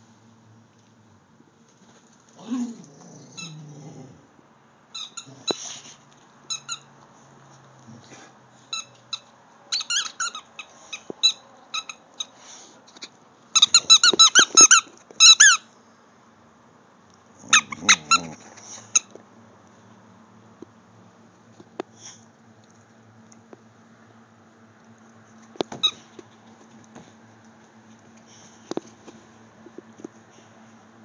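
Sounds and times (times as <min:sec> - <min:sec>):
squeaky toy squeaking: 0:05.0 - 0:05.3, 0:08.8 - 0:12.3, 0:13.6 - 0:15.6, 0:17.5 - 0:18.3
dog chewing toy: 0:17.4 - 0:19.0.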